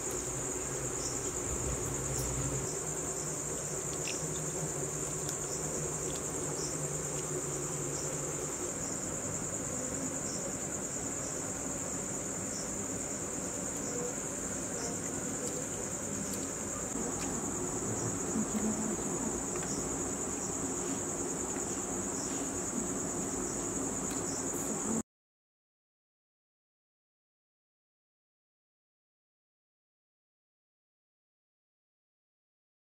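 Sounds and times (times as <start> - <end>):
crickets chirping: 0.0 - 25.0.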